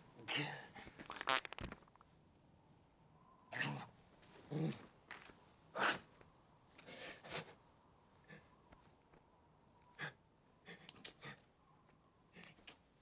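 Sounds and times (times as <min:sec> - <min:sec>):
wet spluttering fart: 0:01.1 - 0:01.8.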